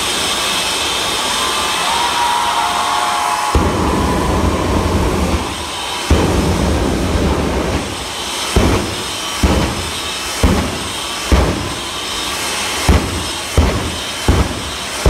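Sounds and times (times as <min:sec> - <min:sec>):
jet engine rushing: 0:00.0 - 0:15.0
afterburner blasts: 0:03.4 - 0:15.0.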